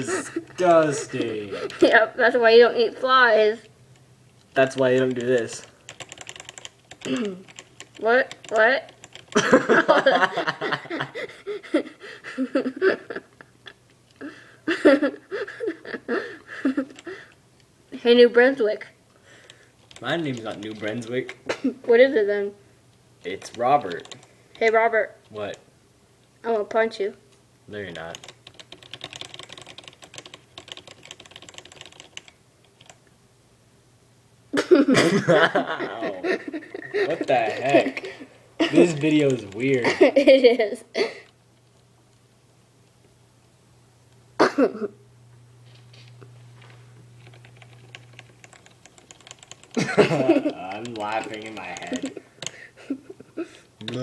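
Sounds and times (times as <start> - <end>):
rapid light clicking: 3.9 - 9.6, 19.4 - 21.4, 47.2 - 52.6.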